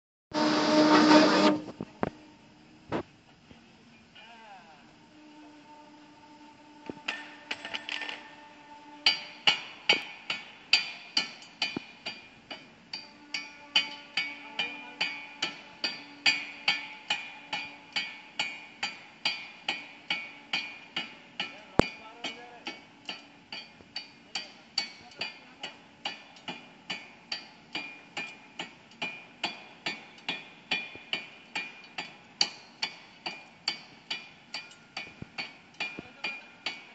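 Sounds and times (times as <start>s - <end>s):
forging hammer striking metal: 9.0s - 36.9s.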